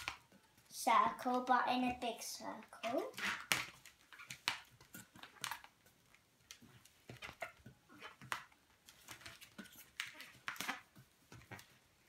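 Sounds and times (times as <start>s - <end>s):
balloons rubbing and scraping: 3.1s - 4.3s.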